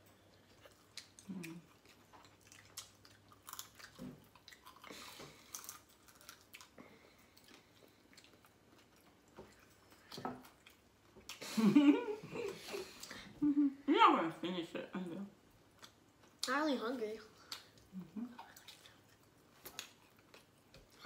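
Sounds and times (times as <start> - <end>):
chewing jerky: 0.2 - 11.4, 17.4 - 21.0.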